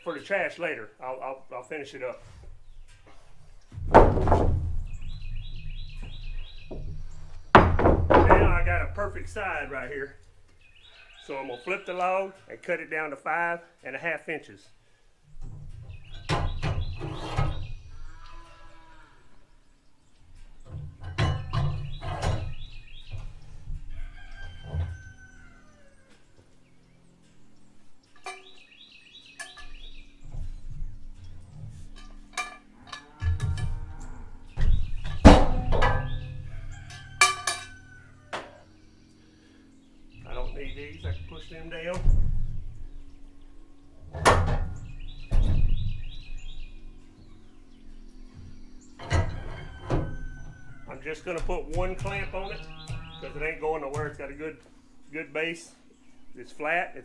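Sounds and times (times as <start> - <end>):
bird chirping: 0.0 - 3.8, 4.8 - 13.1, 15.4 - 57.0
wood and metal knocks: 3.7 - 9.4, 15.4 - 17.8, 20.4 - 25.3, 28.2 - 28.7, 29.4 - 38.6, 40.7 - 43.3, 44.0 - 46.9, 48.3 - 54.4
heavy wood knocking on steel: 3.8 - 9.8, 34.6 - 37.8, 49.0 - 54.5
rooster crowing: 23.9 - 26.3, 36.1 - 38.8, 49.0 - 51.0.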